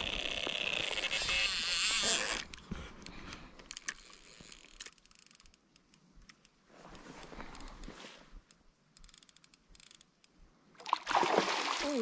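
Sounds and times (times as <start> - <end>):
fishing reel ratcheting and clicking: 0.0 - 2.6, 3.7 - 5.6, 9.0 - 10.1.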